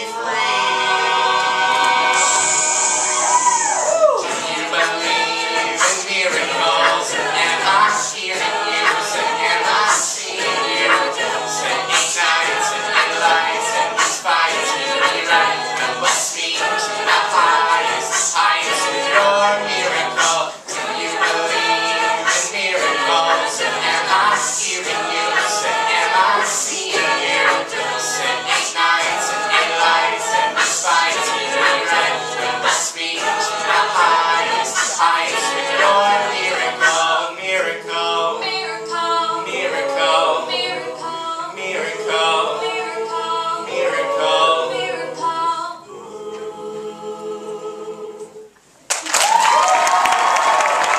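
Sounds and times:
a cappella group singing in harmony: 0:00.0 - 0:48.8
vocal percussion ticks: 0:04.3 - 0:37.2.

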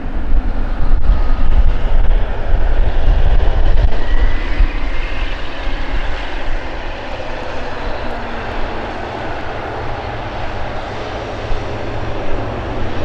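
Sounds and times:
jet airliner engines running: 0:00.0 - 0:13.0.

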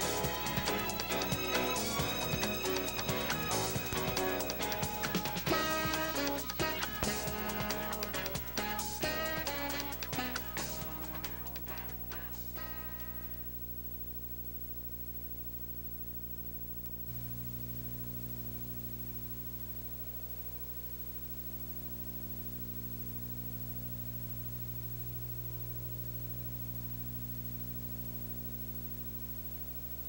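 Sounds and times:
electrical hum: 0:00.0 - 0:30.0
tape hiss: 0:00.0 - 0:30.0.

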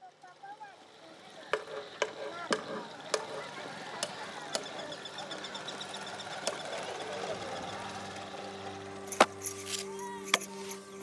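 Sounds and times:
outdoor background noise: 0:00.0 - 0:11.0
rapid high ticking: 0:01.5 - 0:09.2
sharp knocks: 0:01.6 - 0:03.5.

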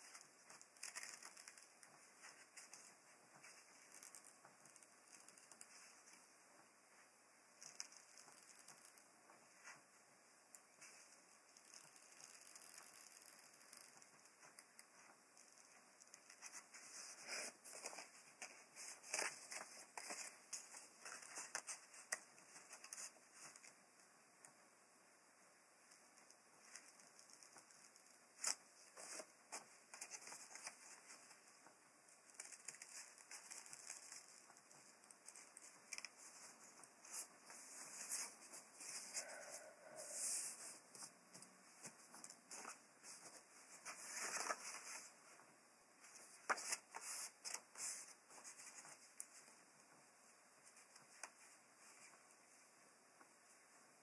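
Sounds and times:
paper rustling: 0:00.0 - 0:06.2, 0:10.8 - 0:23.8, 0:26.6 - 0:31.6, 0:32.2 - 0:45.4, 0:46.0 - 0:49.6.

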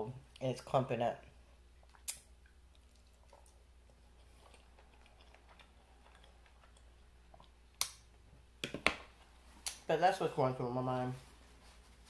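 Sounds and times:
person chewing soft food: 0:01.6 - 0:08.2.

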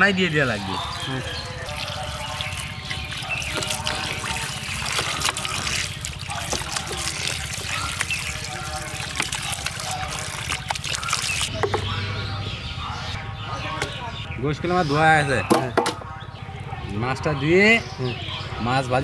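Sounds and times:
water trickling and splashing: 0:00.0 - 0:11.9
hands rubbing wet meat: 0:01.6 - 0:11.5.

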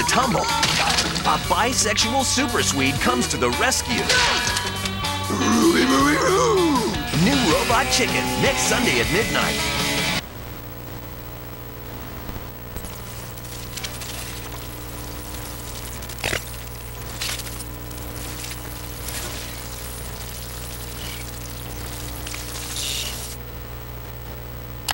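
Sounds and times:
low electrical hum: 0:00.0 - 0:24.9
constant hiss: 0:07.2 - 0:24.9.

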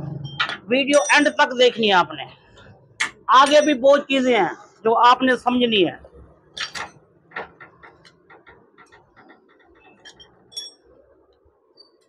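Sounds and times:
ringing metal clinks: 0:00.2 - 0:01.4, 0:10.0 - 0:11.0
metal knocks: 0:06.6 - 0:10.7.

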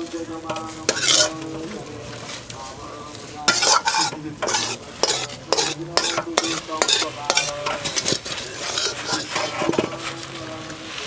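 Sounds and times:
food sizzling: 0:00.0 - 0:11.0
ladle scraping a pot: 0:00.5 - 0:01.7, 0:03.4 - 0:10.3.

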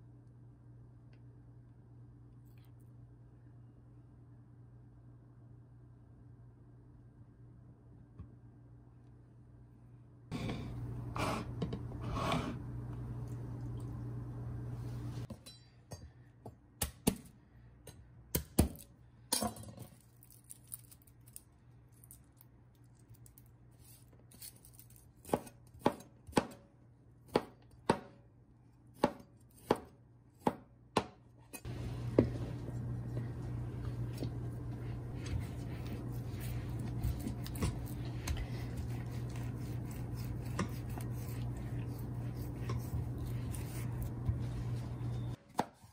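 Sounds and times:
knife chopping on cutting board: 0:25.2 - 0:26.6, 0:27.3 - 0:28.2, 0:29.0 - 0:31.2, 0:36.5 - 0:41.3, 0:45.5 - 0:45.9
steady low hum: 0:31.4 - 0:45.4.

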